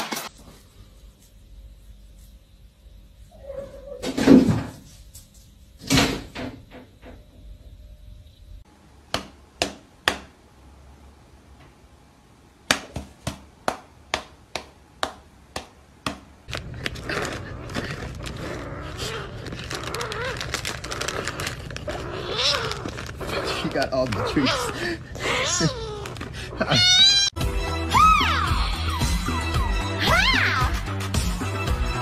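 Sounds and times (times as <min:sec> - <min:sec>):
plastic packet crinkling: 0:16.5 - 0:24.8.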